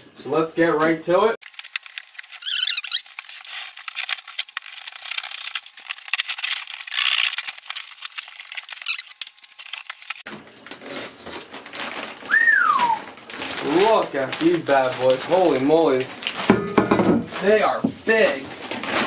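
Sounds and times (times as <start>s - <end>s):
packing tape ripping: 1.4s - 16.5s, 17.4s - 19.0s
plastic wrap crinkling: 1.4s - 19.0s
short high squeak: 2.4s - 3.0s
cardboard flaps scraping: 17.3s - 19.0s.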